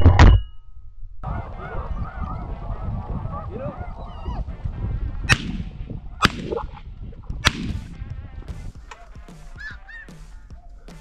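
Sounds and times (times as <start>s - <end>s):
snow geese honking: 1.2s - 4.7s, 8.9s - 10.5s
shotgun shots: 5.3s - 6.8s, 7.4s - 8.0s.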